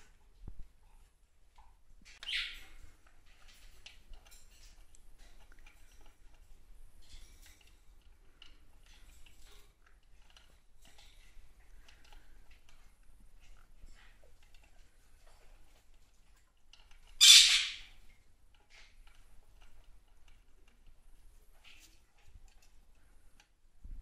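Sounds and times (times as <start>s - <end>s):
short high bird chirp: 2.2s - 2.6s.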